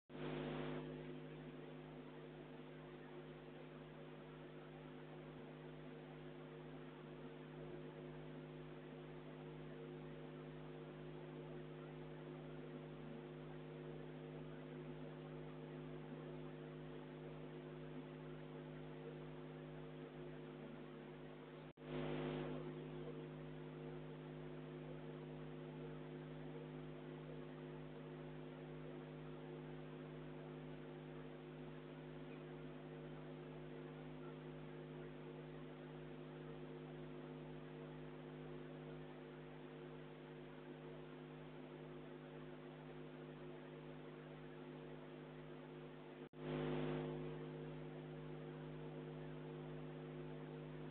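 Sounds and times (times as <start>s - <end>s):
electrical hum: 0.1s - 50.9s.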